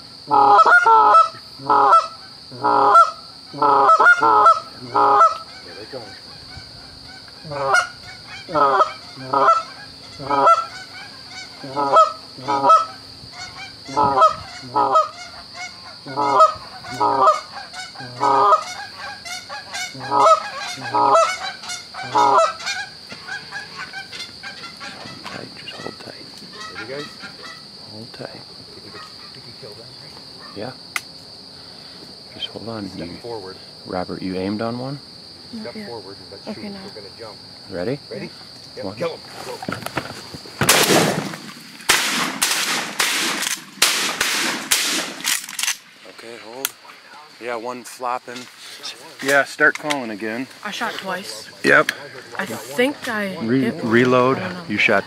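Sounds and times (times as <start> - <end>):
faint steady high whine: 0.0 - 55.0
geese honking: 0.3 - 27.8.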